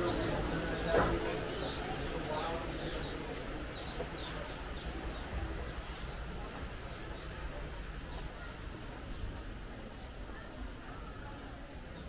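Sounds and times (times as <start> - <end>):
birds chirping: 0.0 - 5.2
faint distant voices: 0.0 - 12.0.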